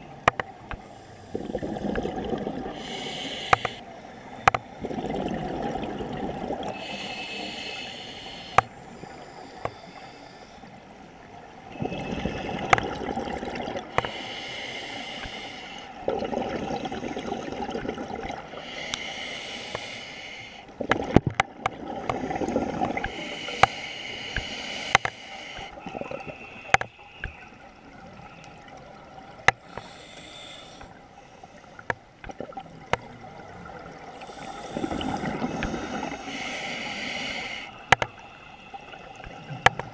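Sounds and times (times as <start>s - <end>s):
bubbles gushing: 1.3s - 2.8s, 4.8s - 6.8s, 11.8s - 13.9s, 16.0s - 18.5s, 20.8s - 23.1s
regulator hissing on inhalation: 2.7s - 3.8s, 6.8s - 10.6s, 18.6s - 20.7s, 23.1s - 27.4s, 29.6s - 30.9s, 34.2s - 37.8s.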